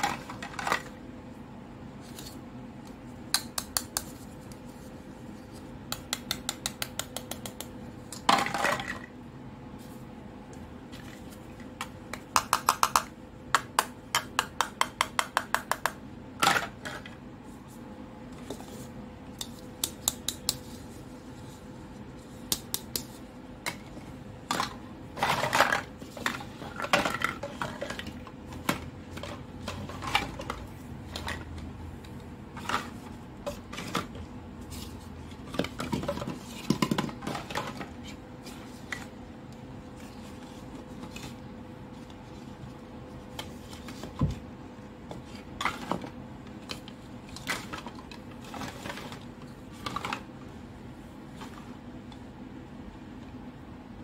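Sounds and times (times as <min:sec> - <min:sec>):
plastic toys clattering: 0:00.0 - 0:01.0, 0:08.2 - 0:09.1, 0:24.5 - 0:31.6, 0:35.4 - 0:38.0, 0:45.6 - 0:50.3.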